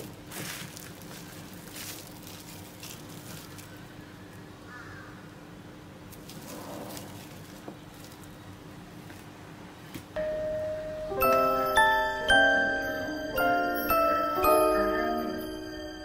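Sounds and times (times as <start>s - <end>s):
cling film crinkling: 0.0s - 4.0s, 6.1s - 9.3s
faint hum: 7.2s - 16.0s.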